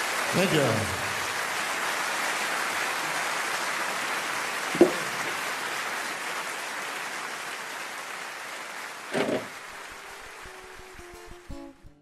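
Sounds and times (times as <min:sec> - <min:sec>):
steady hiss: 0:09.2 - 0:11.9.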